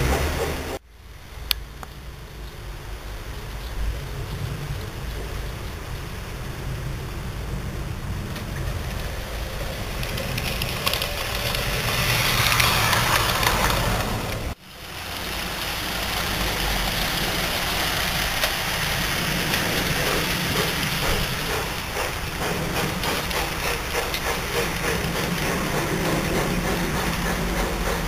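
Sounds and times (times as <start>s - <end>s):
wheels rolling over rails: 2.4s - 28.0s
model train motor whirring: 8.8s - 28.0s.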